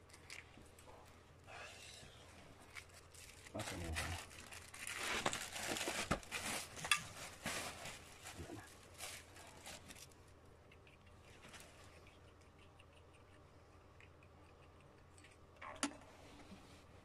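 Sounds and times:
rustling and scraping: 2.4s - 10.2s.

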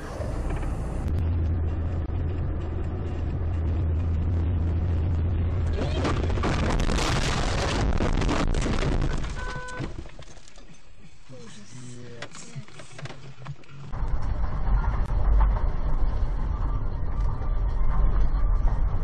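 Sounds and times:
car cabin drone: 0.0s - 8.7s, 9.9s - 19.0s
car crash impact: 5.7s - 10.4s.

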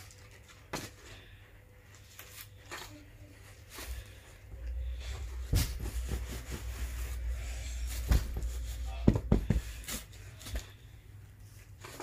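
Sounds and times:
soft rustling of pillow: 5.0s - 10.4s
dull thumps: 5.4s - 6.9s, 8.0s - 9.9s.

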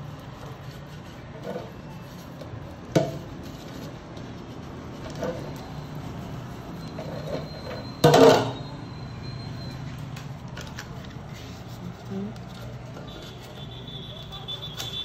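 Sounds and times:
metal pan clatter: 8.0s - 8.6s.

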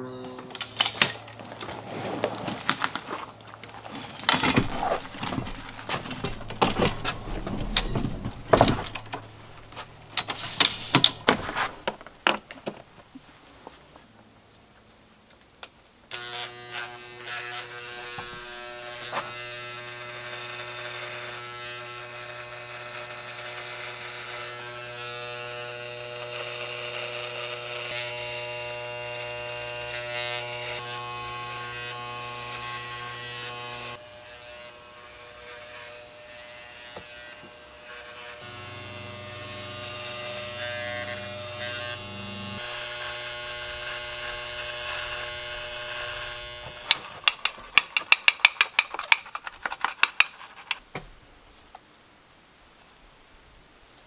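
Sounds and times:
electric shaver buzzing: 4.6s - 6.8s, 16.1s - 47.4s.

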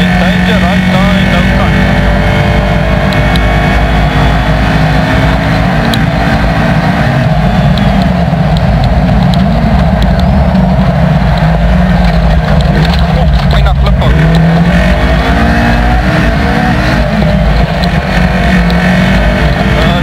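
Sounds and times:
rally car engine revving hard: 0.0s - 20.0s.

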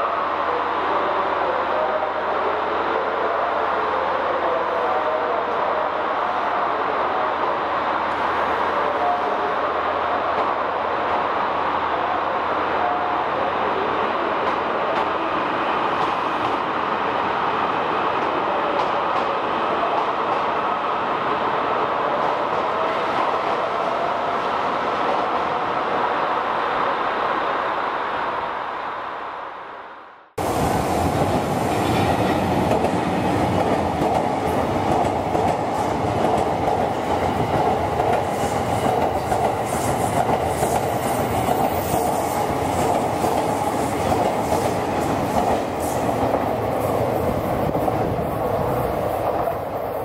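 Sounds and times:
train wheels rumbling on rails: 30.4s - 50.0s.

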